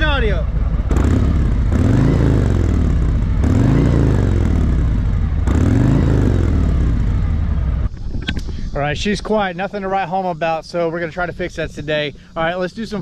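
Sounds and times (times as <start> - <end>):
motorcycle engine revving: 0.0 - 7.9.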